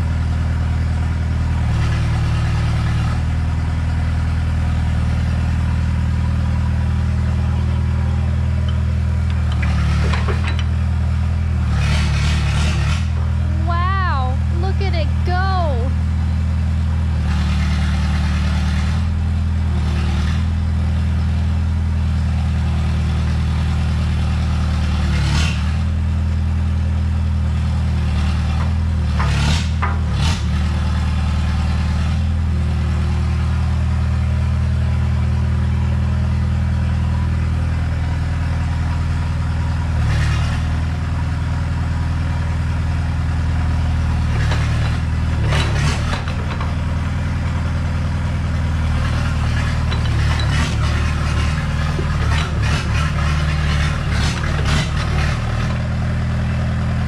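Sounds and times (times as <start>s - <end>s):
diesel engine idling: 0.0s - 57.0s
short knocks and clatters: 8.7s - 10.8s, 44.4s - 46.9s.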